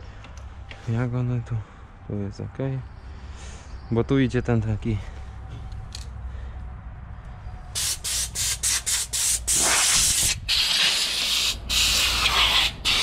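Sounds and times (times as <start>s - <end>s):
compressed air blow gun hissing: 7.8s - 13.0s.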